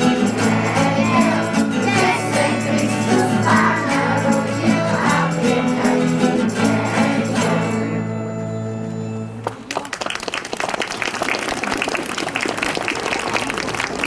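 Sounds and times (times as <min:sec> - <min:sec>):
children's choir singing: 0:00.0 - 0:08.3
instrumental backing: 0:00.0 - 0:09.7
audience applause: 0:09.4 - 0:14.0.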